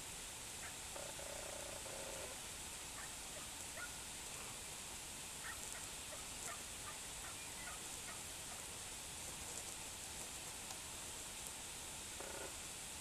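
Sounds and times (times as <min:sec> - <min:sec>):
outdoor ambience hiss: 0:00.0 - 0:13.0.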